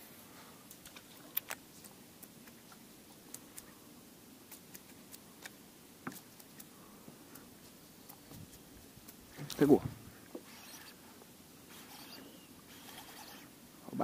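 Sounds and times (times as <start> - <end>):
faint steady hiss: 0.0 - 14.0
fishing reel clicking: 11.8 - 13.5.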